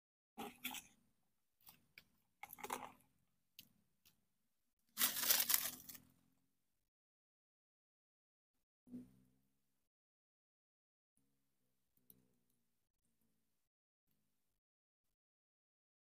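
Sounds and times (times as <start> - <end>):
dry material crinkling and rustling: 5.0 - 6.0.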